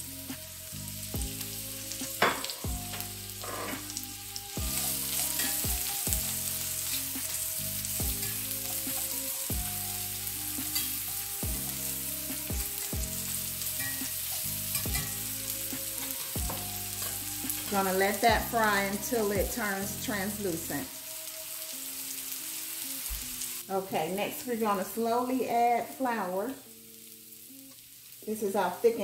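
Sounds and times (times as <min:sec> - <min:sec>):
onion sizzling in skillet: 0:00.0 - 0:29.0.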